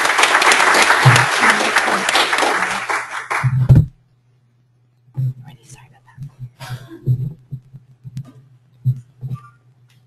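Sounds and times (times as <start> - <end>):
audience applauding: 0.0 - 3.6.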